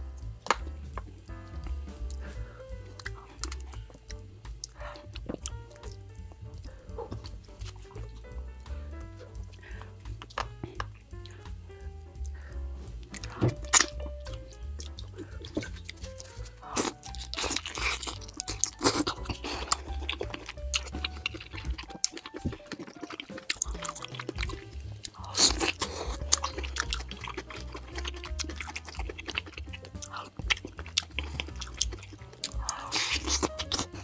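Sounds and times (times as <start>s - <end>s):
background music with low bass: 0.0s - 34.0s
close chewing and biting: 0.0s - 34.0s.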